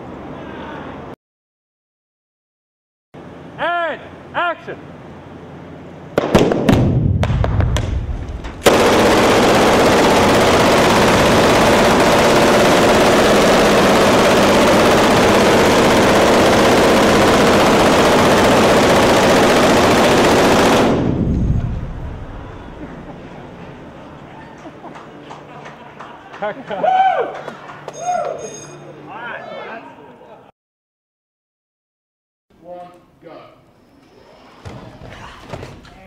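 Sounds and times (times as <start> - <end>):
machine gun automatic fire: 6.2 - 22.9.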